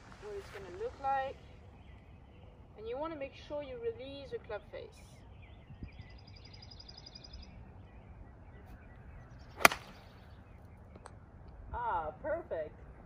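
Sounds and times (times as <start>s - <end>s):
golf club striking ball: 9.6s - 10.1s.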